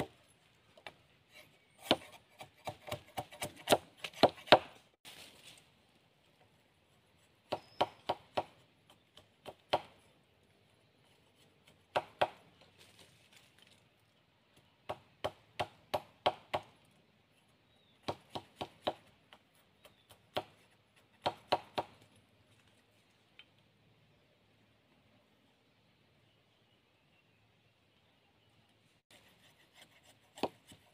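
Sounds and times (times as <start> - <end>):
machete chopping wooden stick: 1.8 - 4.8, 11.9 - 12.4.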